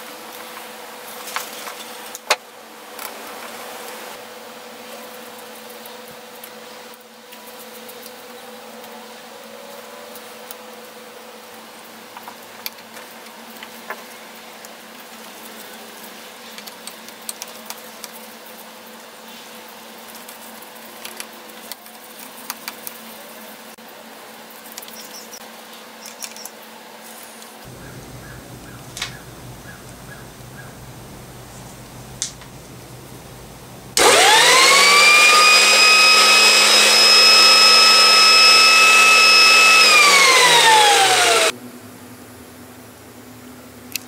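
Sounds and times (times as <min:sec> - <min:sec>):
steady hum: 0:27.7 - 0:41.5.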